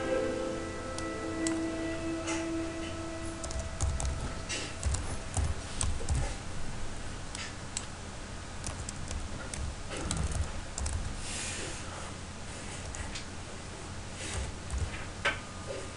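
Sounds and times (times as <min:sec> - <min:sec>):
computer keyboard typing: 0:03.4 - 0:06.4, 0:08.6 - 0:11.2, 0:14.4 - 0:15.0.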